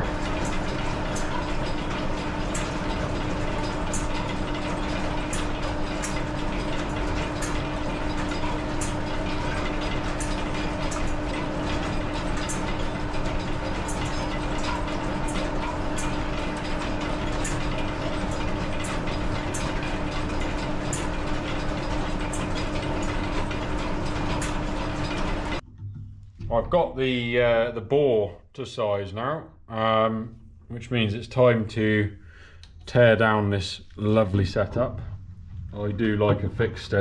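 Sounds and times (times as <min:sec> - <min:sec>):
regular mechanical click: 0:00.0 - 0:26.4
lineshaft and belts humming: 0:00.0 - 0:28.5, 0:29.2 - 0:37.0.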